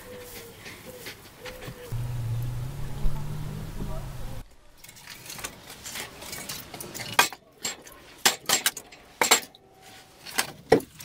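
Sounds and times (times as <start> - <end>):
logs clattering into wire basket: 4.8 - 9.6.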